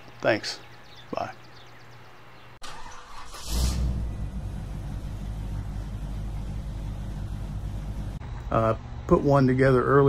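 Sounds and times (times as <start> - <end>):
deep rumbling drone: 3.5 - 8.5.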